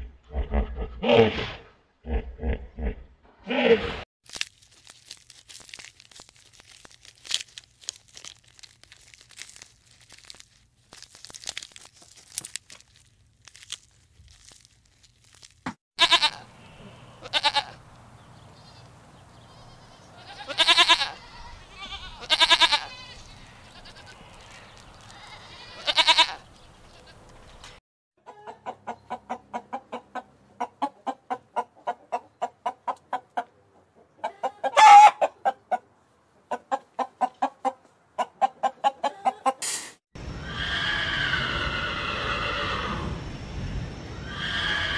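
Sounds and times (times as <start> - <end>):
faint crackling and rustling: 4.3 - 15.7
goats bleating: 16.0 - 16.4, 17.2 - 17.8, 19.5 - 24.2, 25.0 - 26.4
fowl clucking: 28.2 - 39.7.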